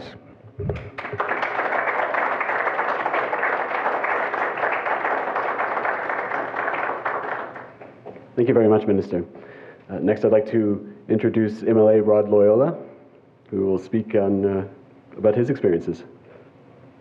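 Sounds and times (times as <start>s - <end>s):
audience applauding: 0.8s - 8.1s.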